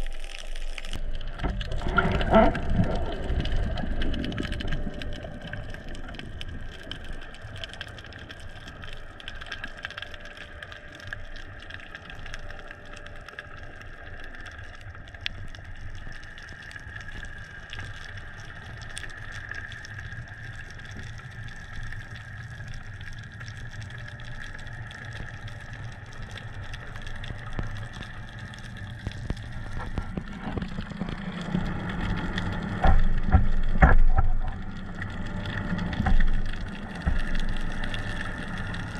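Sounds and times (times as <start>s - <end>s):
faint hum: 0.0s - 38.9s
bumps and knocks: 32.8s - 34.6s.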